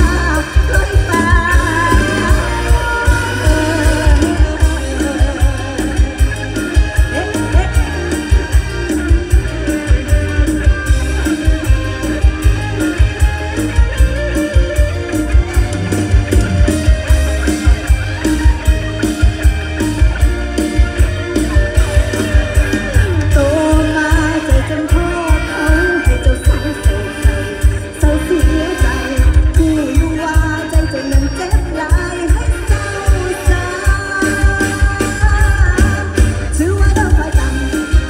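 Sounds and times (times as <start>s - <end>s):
woman singing: 0.0s - 7.7s, 23.3s - 38.0s
heavy drum beat: 0.0s - 38.0s.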